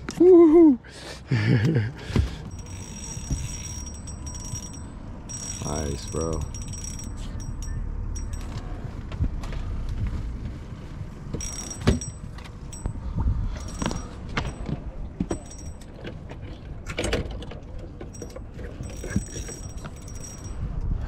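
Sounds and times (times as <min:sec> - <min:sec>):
steady low rumble: 0:01.8 - 0:16.8
fishing gear knocking and clattering: 0:02.1 - 0:09.2, 0:11.3 - 0:20.6.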